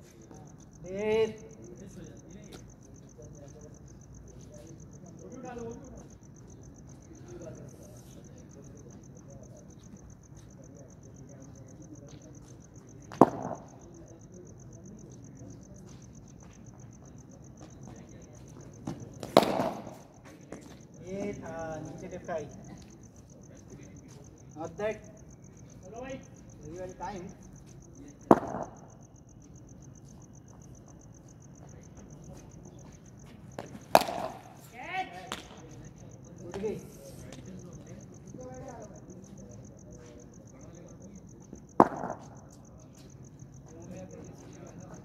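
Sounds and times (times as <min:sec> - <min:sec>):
crickets chirping: 0:00.0 - 0:45.0
cricket ball cracking: 0:13.1 - 0:13.9, 0:18.8 - 0:20.1, 0:28.3 - 0:29.0, 0:33.6 - 0:35.8, 0:41.8 - 0:42.5.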